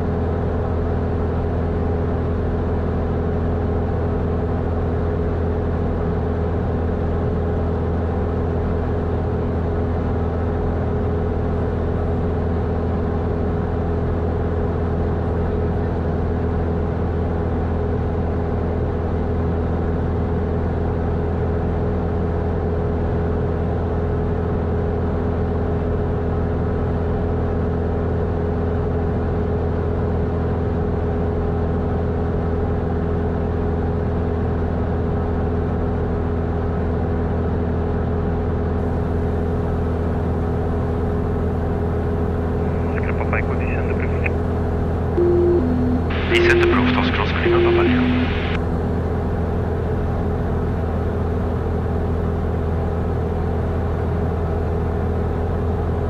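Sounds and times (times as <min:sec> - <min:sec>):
light aircraft engine droning: 0:38.9 - 0:44.4.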